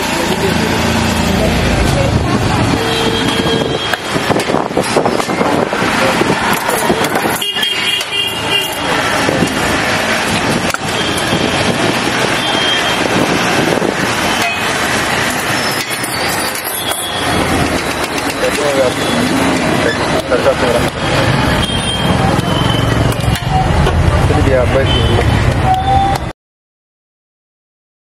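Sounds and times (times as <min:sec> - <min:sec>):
people talking: 0:00.0 - 0:03.9, 0:05.2 - 0:07.4, 0:08.4 - 0:09.8, 0:15.6 - 0:26.2
passing vehicles: 0:00.0 - 0:26.3
car horns honking: 0:02.7 - 0:04.2, 0:06.8 - 0:09.0, 0:21.2 - 0:23.9.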